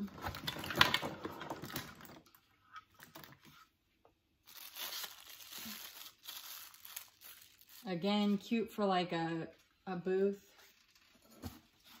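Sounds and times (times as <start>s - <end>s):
candle lights clattering in a box: 0.0s - 2.3s.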